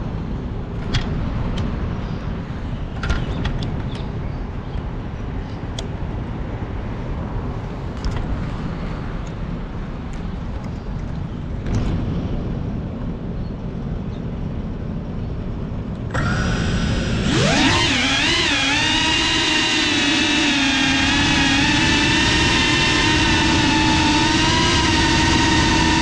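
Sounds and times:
wind rumble on microphone: 0.0s - 26.0s
drone motors whining: 16.1s - 26.0s.

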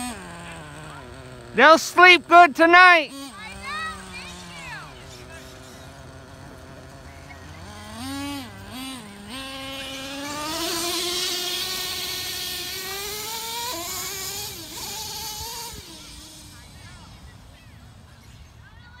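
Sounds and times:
toy truck motor revving: 0.0s - 18.7s.

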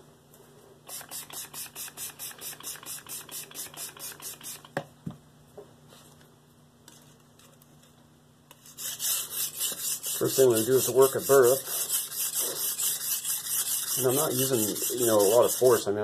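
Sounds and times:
spray bottle squirting: 0.9s - 4.7s.

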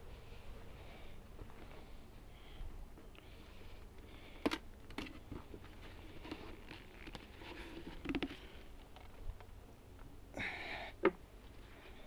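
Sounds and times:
scraping and rustling of wood: 4.0s - 9.3s.

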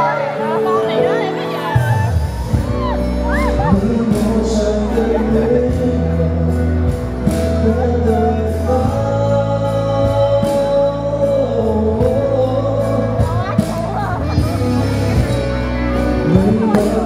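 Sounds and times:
pop backing track: 0.0s - 17.0s
man singing into microphone: 2.6s - 17.0s.

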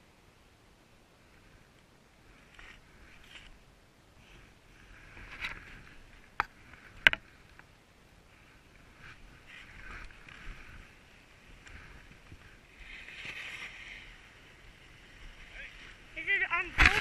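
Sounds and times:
skis scraping over snow: 8.3s - 17.0s.

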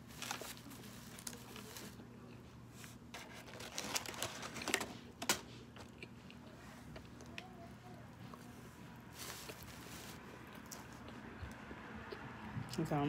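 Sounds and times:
paper wrapper crinkling: 0.0s - 2.0s, 3.1s - 5.4s, 9.2s - 10.2s.

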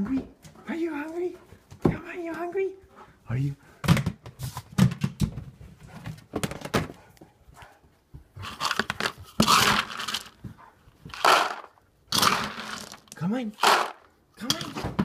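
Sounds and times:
dry kibble rattling in plastic bin: 8.4s - 10.4s, 11.1s - 15.0s.

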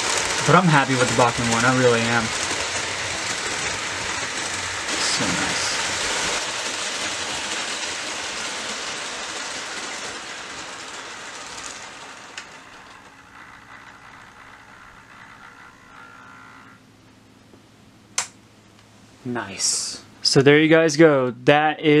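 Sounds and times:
model train running on track: 0.0s - 16.7s
sharp click: 18.2s - 18.4s.

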